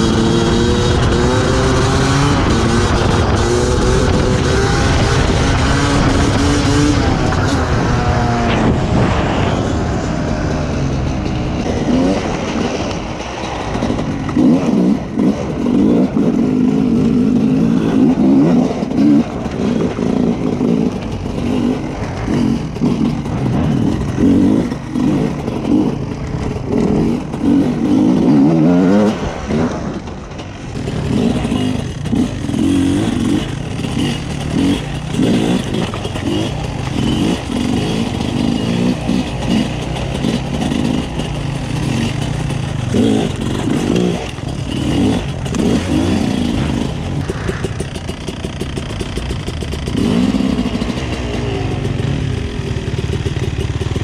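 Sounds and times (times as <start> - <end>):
two-stroke motorcycle engine revving: 0.0 - 54.0.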